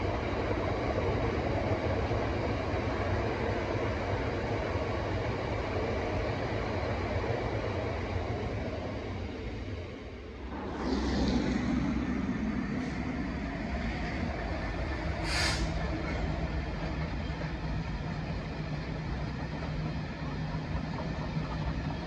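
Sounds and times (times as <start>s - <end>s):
diesel locomotive engine running: 0.0s - 22.0s
short hiss: 15.2s - 15.8s.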